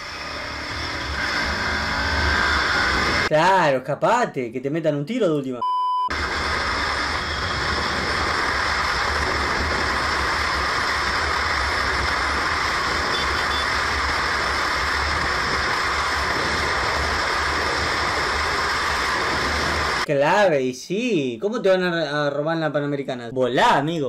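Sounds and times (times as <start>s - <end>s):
road noise: 0.0s - 3.4s, 6.1s - 20.1s
low rumble: 6.1s - 20.1s
wind rush: 6.1s - 20.1s.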